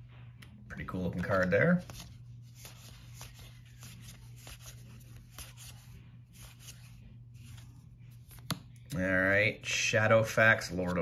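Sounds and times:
low steady hum: 0.0 - 11.0
cards sliding and clicking: 1.1 - 8.9.

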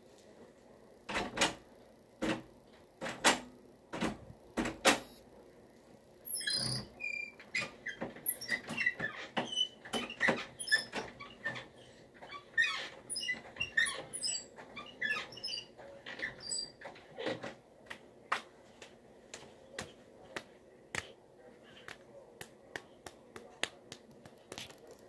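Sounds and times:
hand claps or snaps: 19.3 - 21.2, 21.8 - 24.8.

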